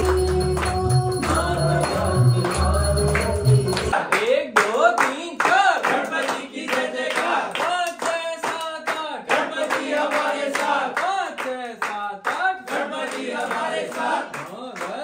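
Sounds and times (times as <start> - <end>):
group singing devotional song: 0.0 - 7.6, 9.2 - 11.1, 12.4 - 14.4
people clapping in time: 0.0 - 15.0.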